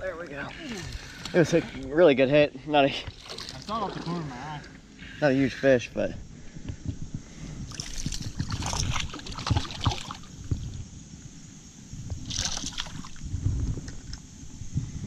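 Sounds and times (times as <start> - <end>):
water splashing and sloshing: 0.1 - 5.2, 7.7 - 10.8, 12.2 - 14.2.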